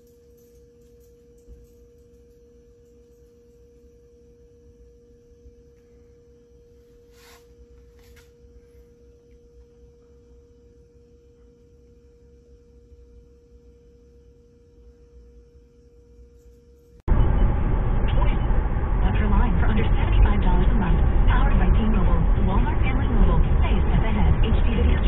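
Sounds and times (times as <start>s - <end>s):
faint steady hum: 0.0s - 25.0s
soft hisses: 7.0s - 8.3s
low rumble: 17.1s - 25.0s.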